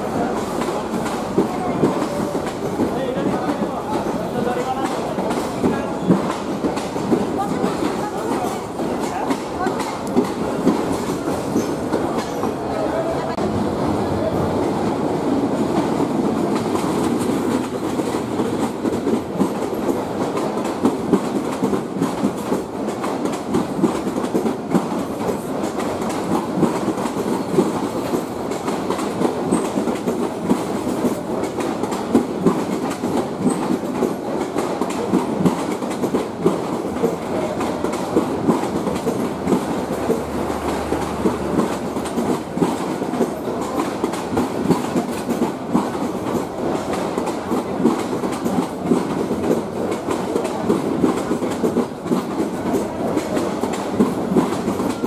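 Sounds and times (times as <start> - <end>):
train coaches rumbling: 0.0 - 55.0
wheels clacking over rail joints: 14.6 - 55.0.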